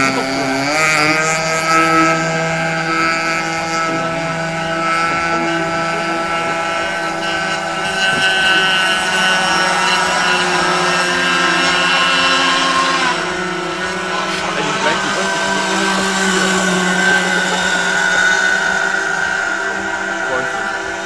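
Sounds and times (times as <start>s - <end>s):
model speedboat motors whining: 0.0s - 21.0s.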